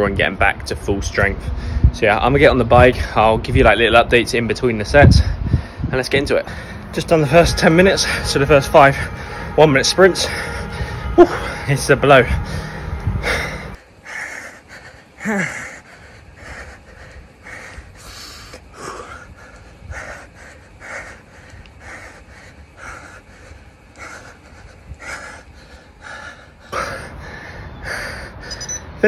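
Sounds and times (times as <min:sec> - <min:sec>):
man panting hard: 0:01.5 - 0:02.0, 0:05.0 - 0:06.9, 0:09.0 - 0:09.6, 0:10.3 - 0:11.7, 0:12.4 - 0:29.0
man groaning: 0:07.2 - 0:11.8, 0:15.2 - 0:15.7.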